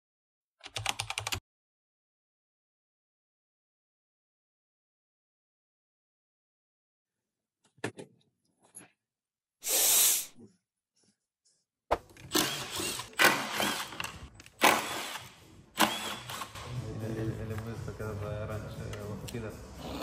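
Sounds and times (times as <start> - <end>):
impact driver bursts: 12.3 - 16.6.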